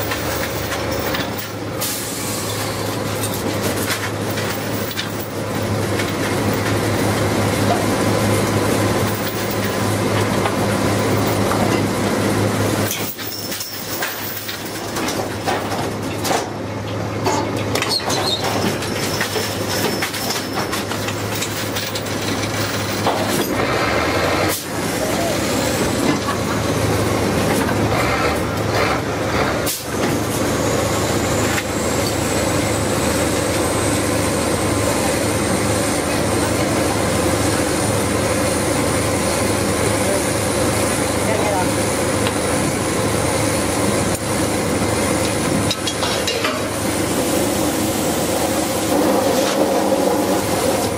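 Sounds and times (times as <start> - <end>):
rig machinery droning: 0.0 - 50.9
metal clanks and knocks: 17.2 - 23.6, 45.7 - 46.7.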